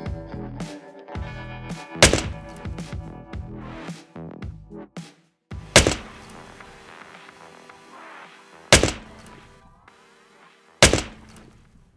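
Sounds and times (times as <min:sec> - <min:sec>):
background music: 0:00.0 - 0:11.7
loud sharp thunks: 0:02.0 - 0:02.5, 0:05.8 - 0:06.3, 0:08.8 - 0:09.4, 0:10.8 - 0:11.5.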